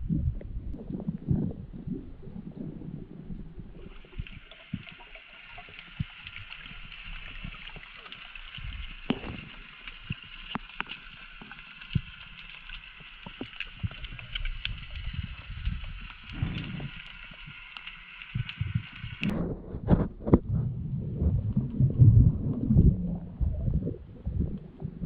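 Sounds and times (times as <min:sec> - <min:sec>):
sharp underwater clicks: 0:03.8 - 0:19.3
underwater hiss: 0:03.8 - 0:19.3.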